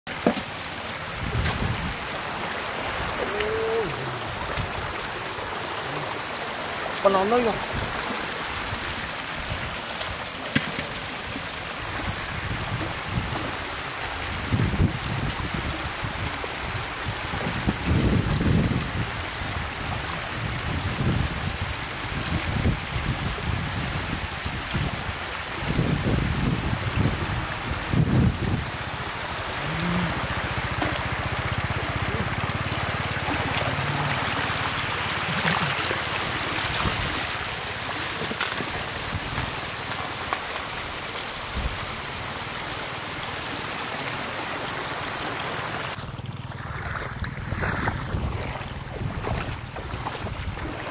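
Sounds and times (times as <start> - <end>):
shallow water rushing: 0.1 - 50.9
basket sloshing through water: 29.3 - 41.4, 45.9 - 50.9.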